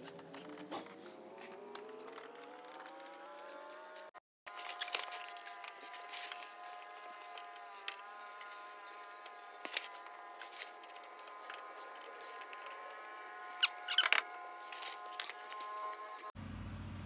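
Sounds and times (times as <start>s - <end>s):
screwdriver clicking and scraping: 4.5s - 16.2s.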